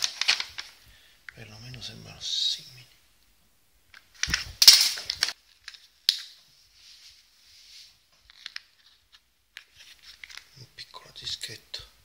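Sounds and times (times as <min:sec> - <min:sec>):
paper envelope crinkling: 0:00.0 - 0:00.8, 0:03.9 - 0:06.3, 0:07.8 - 0:10.6.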